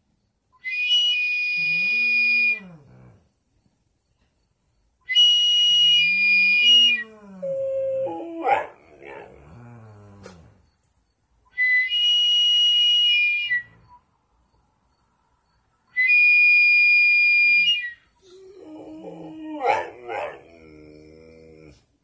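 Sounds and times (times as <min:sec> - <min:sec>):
high-pitched whistle tones: 0:00.6 - 0:02.8, 0:05.0 - 0:08.5, 0:10.8 - 0:20.1
dog howling: 0:06.0 - 0:10.5, 0:18.2 - 0:21.8
dog yelp: 0:08.4 - 0:09.4, 0:19.6 - 0:20.5.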